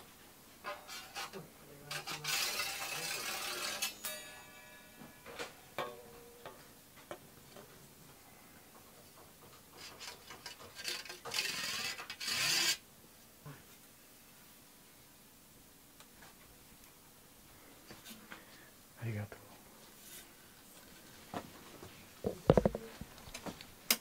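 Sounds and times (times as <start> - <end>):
saw blade ringing: 2.0 - 6.4.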